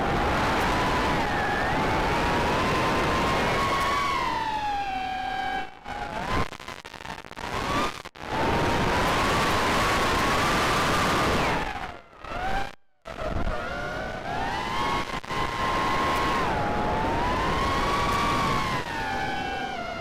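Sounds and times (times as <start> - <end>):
wind noise: 13.3 - 20.0.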